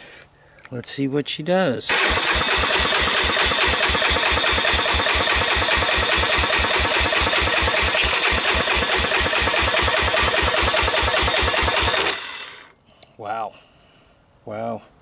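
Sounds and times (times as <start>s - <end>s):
engine being cranked over: 1.9s - 12.7s.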